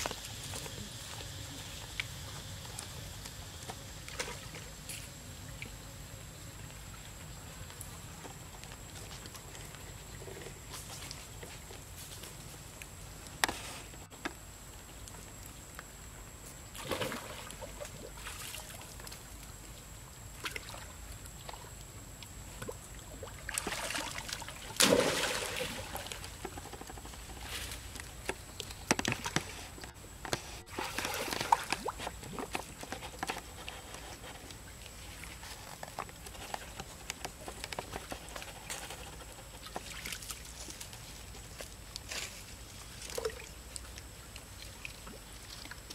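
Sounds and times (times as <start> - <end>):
water splashing: 16.7 - 19.1, 22.5 - 26.6, 30.6 - 32.9.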